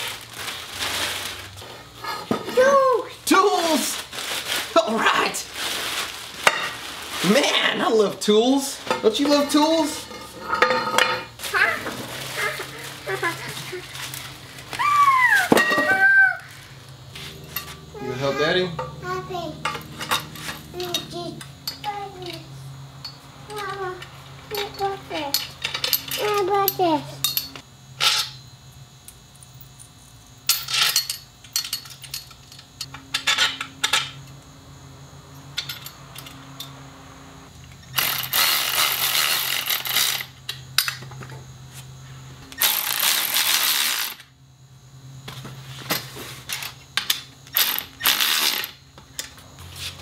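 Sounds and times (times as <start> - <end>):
metal clinks and clanks: 8.9 - 13.4, 19.6 - 23.8, 24.5 - 28.4, 29.5 - 34.4, 35.3 - 36.8.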